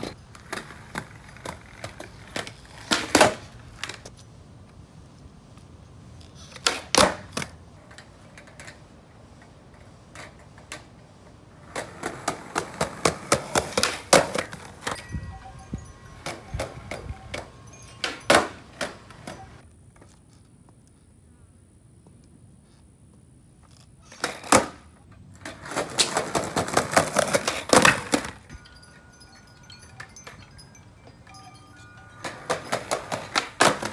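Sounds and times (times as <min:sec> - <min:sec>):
skateboard clacking on concrete: 0:00.0 - 0:04.2, 0:06.5 - 0:20.3, 0:24.0 - 0:28.6, 0:31.0 - 0:33.9.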